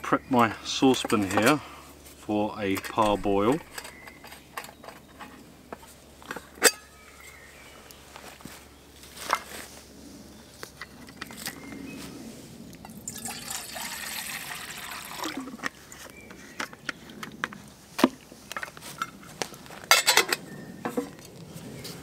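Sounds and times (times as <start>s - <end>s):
water poured into metal saucepan: 12.9s - 15.6s.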